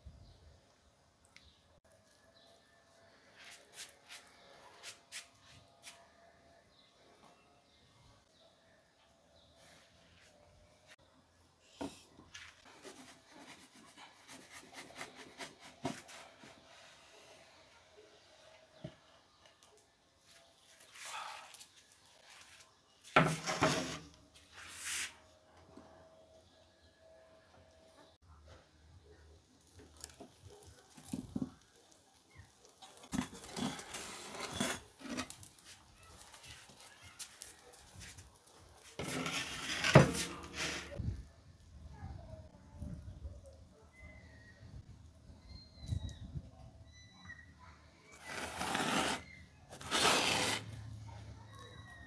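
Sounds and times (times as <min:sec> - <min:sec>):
pizza scraping on stone: 0:23.2 - 0:25.1, 0:32.7 - 0:35.8, 0:38.8 - 0:41.0, 0:48.1 - 0:50.8.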